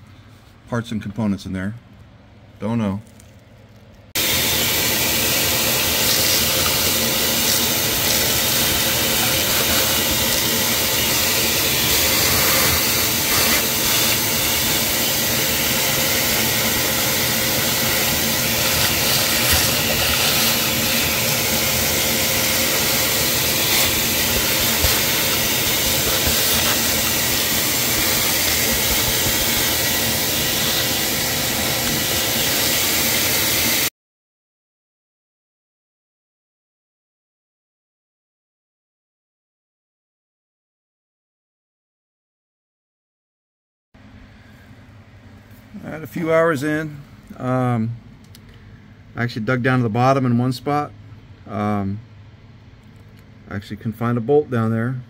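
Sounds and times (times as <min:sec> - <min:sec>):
shop vac running: 0:04.2 - 0:33.9.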